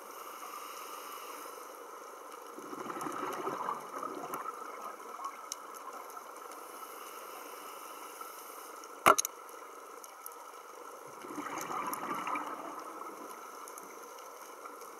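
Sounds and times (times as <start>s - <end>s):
faint clicks: 0.7s - 12.2s, 13.1s - 14.9s
underwater air bubbling: 2.4s - 6.5s, 11.0s - 14.7s.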